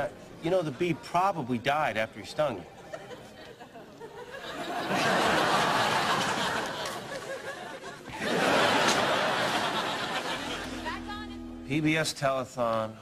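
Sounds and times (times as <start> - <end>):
studio audience laughing: 2.9 - 11.0.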